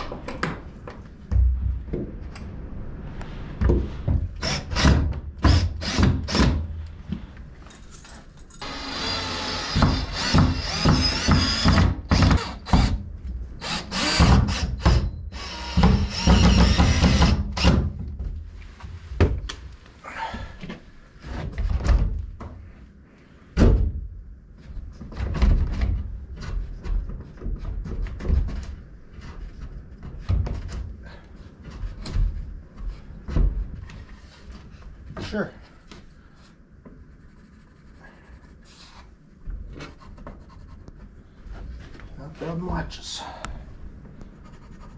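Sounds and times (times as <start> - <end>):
cordless drill driving screws: 8.6 - 12.9, 13.6 - 17.4.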